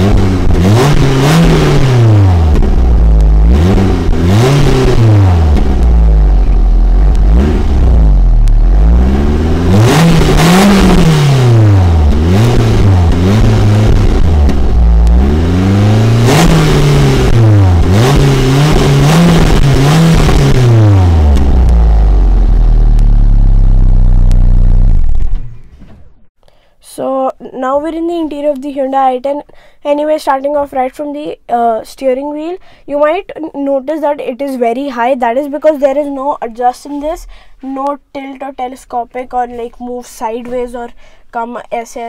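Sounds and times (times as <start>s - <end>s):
car engine revving: 0.0s - 26.3s.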